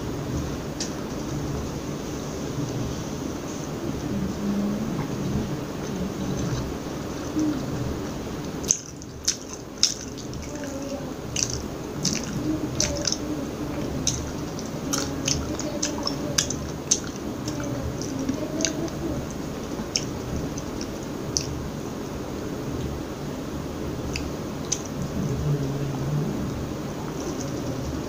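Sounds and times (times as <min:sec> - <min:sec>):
mouth chewing food: 0:04.6 - 0:21.8, 0:24.1 - 0:28.0.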